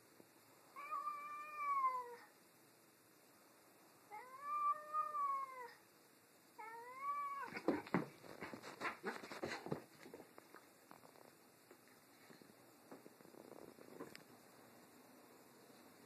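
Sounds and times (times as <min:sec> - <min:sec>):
cat howling: 0:00.8 - 0:02.3, 0:04.1 - 0:05.8, 0:06.6 - 0:07.6
cats scuffling: 0:07.4 - 0:14.2.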